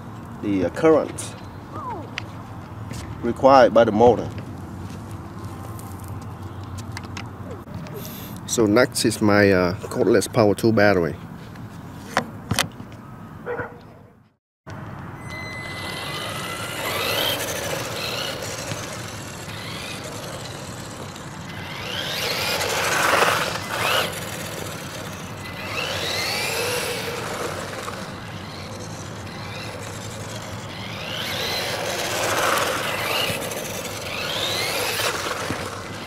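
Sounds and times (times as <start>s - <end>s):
electric motor whine: 15.2s - 36.0s.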